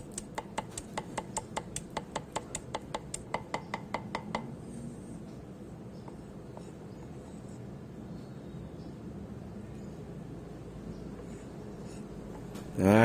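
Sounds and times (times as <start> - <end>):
cleaver chopping on wooden block: 0.0 - 4.5.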